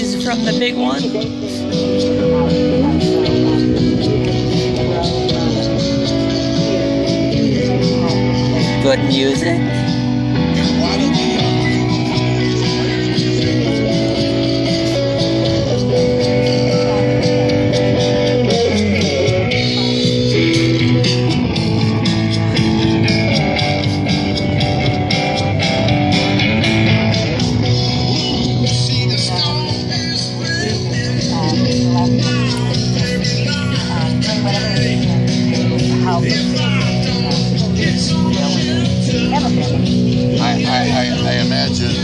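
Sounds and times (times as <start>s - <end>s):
live guitar music over speakers: 0.0s - 42.0s
person singing: 10.4s - 23.4s, 27.4s - 42.0s.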